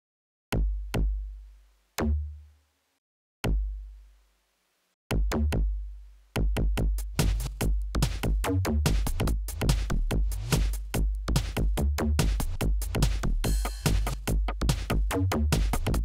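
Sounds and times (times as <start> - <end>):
drum machine kick drum: 0.5 - 1.4, 3.4 - 3.9, 5.1 - 5.8, 6.4 - 16.0.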